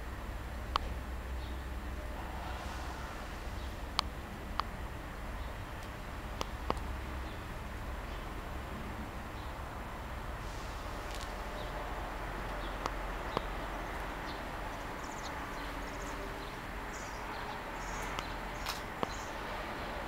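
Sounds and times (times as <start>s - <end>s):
steady background hiss: 0.0s - 20.0s
sharp clicks: 18.0s - 19.2s.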